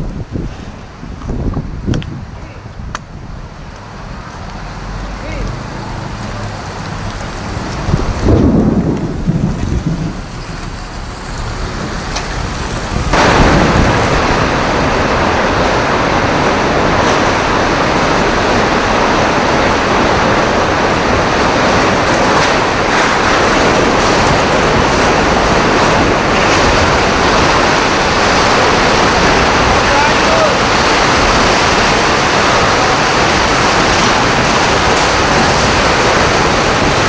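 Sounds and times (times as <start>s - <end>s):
heavy rain: 0.0s - 37.0s
tornado wind roaring: 0.0s - 37.0s
loud low rumble: 7.6s - 10.4s.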